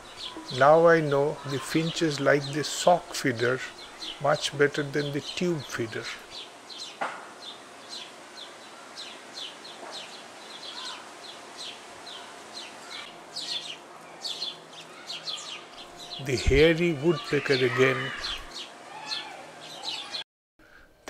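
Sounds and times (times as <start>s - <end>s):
songbirds chirping: 0.0s - 20.2s.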